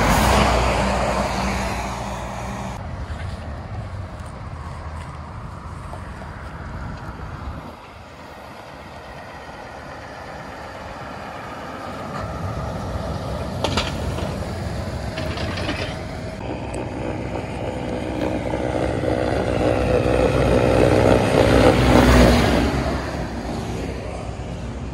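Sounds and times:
heavy vehicle passing: 0.0 - 24.9
road traffic noise: 0.0 - 24.9
sharp clatter: 13.6 - 14.5.

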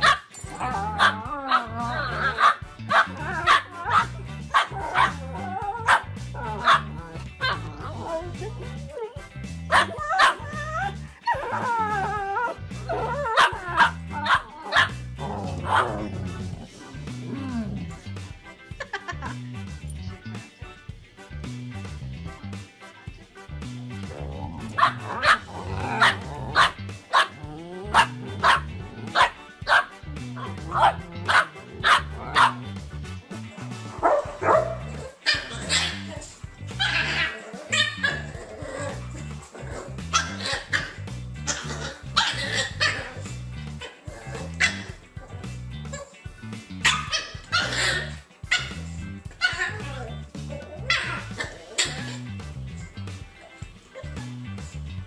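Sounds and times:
dog barking: 0.0 - 7.8, 9.7 - 11.8, 12.9 - 15.0, 15.6 - 16.1, 24.7 - 32.7, 34.0 - 36.1, 36.8 - 38.3, 40.1 - 45.0, 46.8 - 48.8, 50.8 - 52.2
music with bass beat: 0.0 - 55.0.

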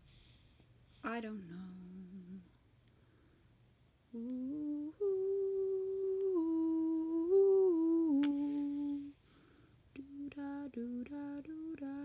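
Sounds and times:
person humming a slow tune: 1.6 - 2.5, 4.1 - 9.2, 10.0 - 12.0.

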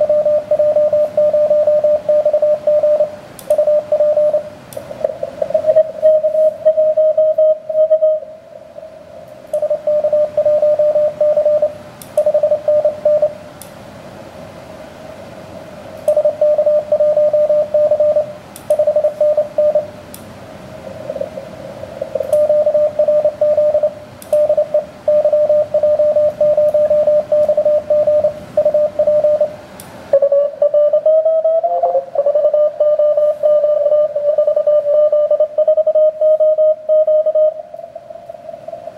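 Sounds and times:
morse code tone: 0.0 - 8.3, 9.6 - 13.4, 16.1 - 20.0, 22.0 - 29.6, 30.2 - 37.7
faint tones of other stations: 0.0 - 13.5, 15.5 - 38.9
radio static hiss: 0.0 - 13.5, 14.6 - 38.9.

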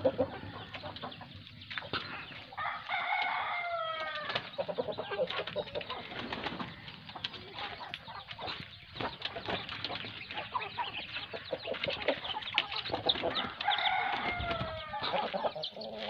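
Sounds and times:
rooster crowing: 2.6 - 4.4, 13.4 - 15.0.

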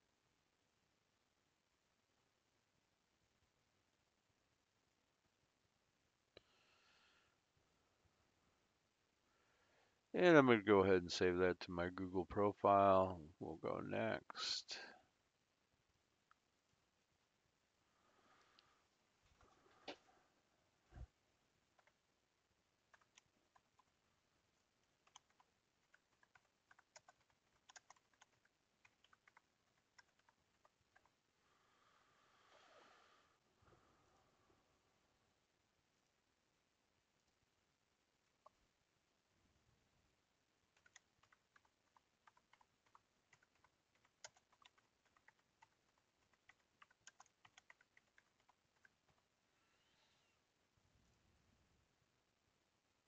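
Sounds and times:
typing on computer keyboard: 22.9 - 23.9, 24.9 - 31.2, 40.7 - 49.3.

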